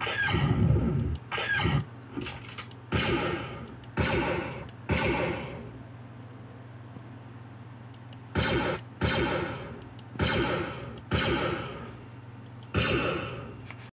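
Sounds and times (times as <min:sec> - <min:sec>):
steady low hum: 0:00.0 - 0:13.9
blaster shot sound effect: 0:02.9 - 0:05.6, 0:08.4 - 0:11.9, 0:12.8 - 0:13.5.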